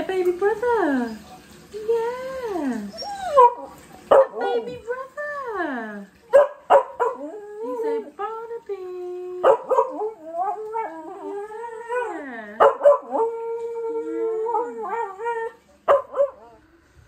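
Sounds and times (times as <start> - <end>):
dog howling and whining: 2.7 - 3.8, 9.7 - 16.7.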